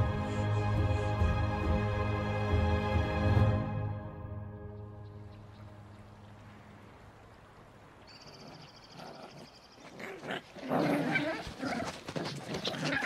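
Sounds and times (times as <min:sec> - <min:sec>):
wolf pups yelping: 0:08.3 - 0:13.0
wolf pups growling: 0:08.4 - 0:13.0.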